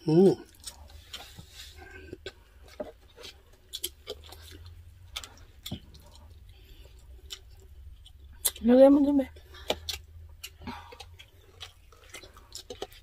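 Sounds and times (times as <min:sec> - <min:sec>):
chewing clicks and smacks: 0:02.0 - 0:08.6, 0:09.4 - 0:13.0.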